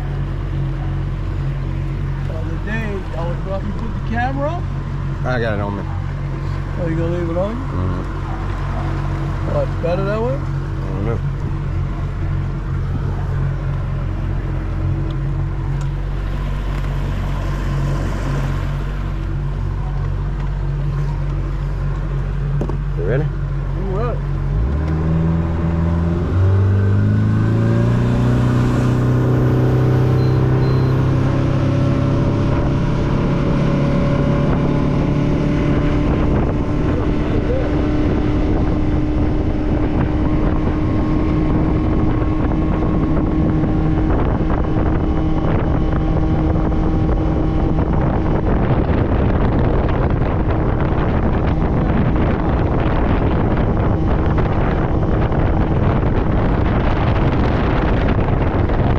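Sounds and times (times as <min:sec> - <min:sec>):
outboard motor revving: 0:00.0 - 0:58.9
wind noise on microphone: 0:24.5 - 0:58.9.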